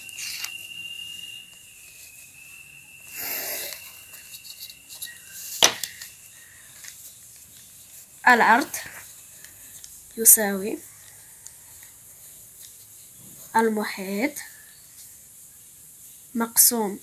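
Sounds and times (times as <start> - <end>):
paper rustle: 0.0 - 0.6, 3.8 - 10.2
faint high whine: 0.0 - 17.0.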